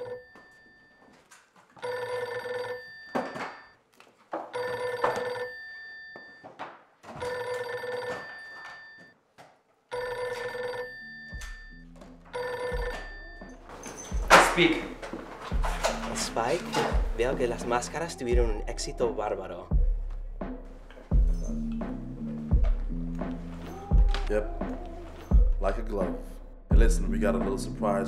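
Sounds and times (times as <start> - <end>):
telephone bell ringing: 0.0 - 1.2, 1.8 - 3.8, 4.6 - 6.5, 7.2 - 9.2, 9.9 - 14.2.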